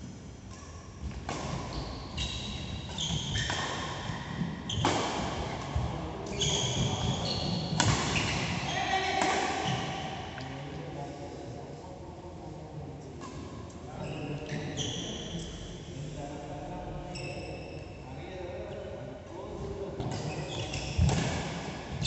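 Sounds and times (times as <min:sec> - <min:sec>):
racket hitting shuttlecock: 0:01.1 - 0:01.9, 0:03.1 - 0:05.6, 0:06.7 - 0:10.0, 0:21.0 - 0:22.0
shoes squeaking on court: 0:01.5 - 0:05.0, 0:06.3 - 0:10.0, 0:20.1 - 0:21.2.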